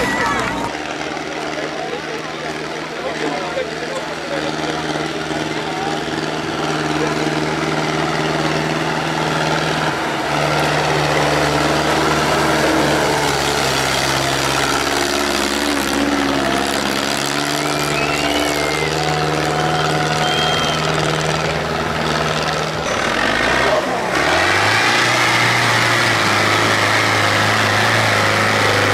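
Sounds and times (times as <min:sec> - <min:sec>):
tractor engine running: 0:00.0 - 0:28.9.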